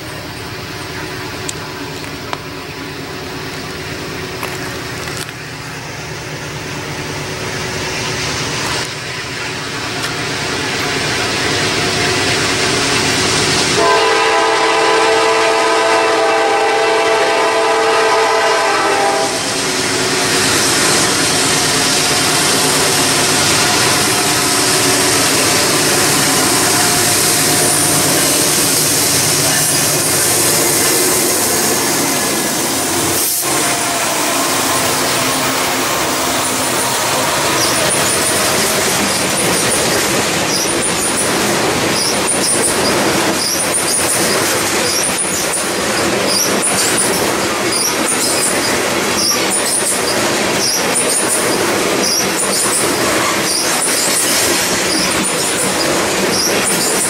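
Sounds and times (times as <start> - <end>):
diesel locomotives running: 0.0 - 57.0
train wheels on rail: 0.0 - 57.0
train air horn blast: 13.8 - 19.6, 22.2 - 38.8.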